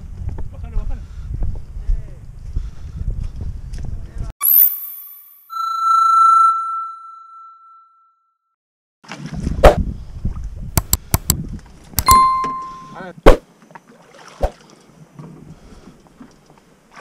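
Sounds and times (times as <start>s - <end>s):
bell ding: 4.4s - 8.3s, 12.0s - 13.0s
sharp clicks: 10.8s - 11.4s
bright chime: 12.0s - 13.0s.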